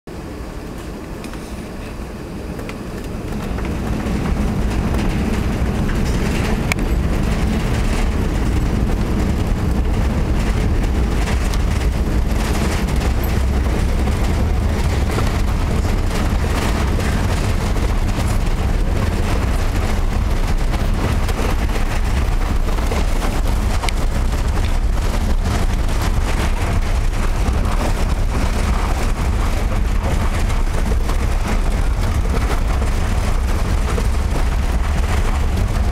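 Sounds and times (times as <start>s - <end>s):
jet engines roaring: 0.1s - 35.9s
wheels rumbling on runway: 0.1s - 35.9s.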